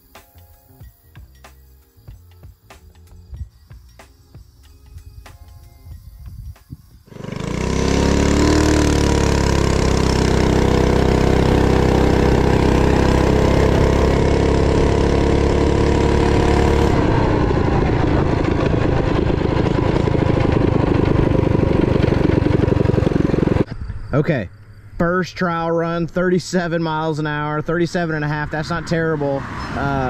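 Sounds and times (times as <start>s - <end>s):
mini bike engine revving: 7.1s - 23.7s.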